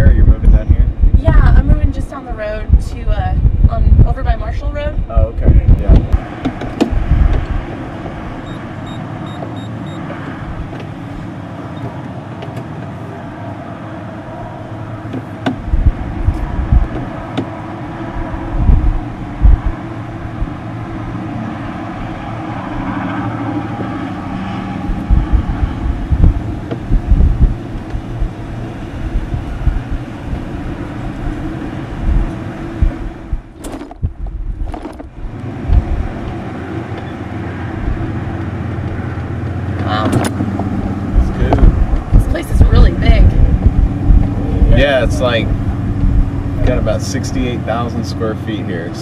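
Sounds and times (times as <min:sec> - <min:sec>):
loud low thumps: 0:00.0 - 0:07.7, 0:15.1 - 0:21.2, 0:23.7 - 0:36.4, 0:37.8 - 0:38.2, 0:39.8 - 0:46.9
golf cart driving: 0:00.6 - 0:49.0.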